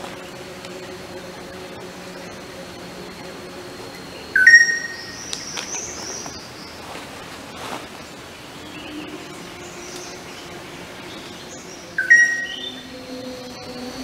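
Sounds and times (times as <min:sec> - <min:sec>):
forest background: 0:00.0 - 0:14.0
bird call: 0:04.3 - 0:06.6, 0:11.1 - 0:12.9.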